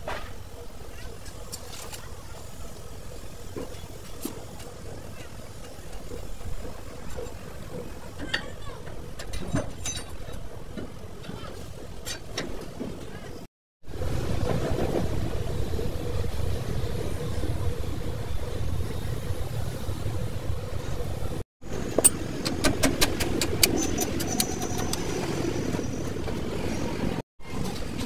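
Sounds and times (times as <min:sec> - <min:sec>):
hand tools clicking and tapping: 0:22.0 - 0:25.1.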